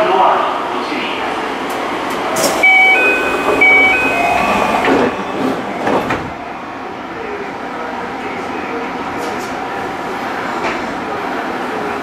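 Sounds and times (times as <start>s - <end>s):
two-note electronic train chime: 2.6s - 5.4s.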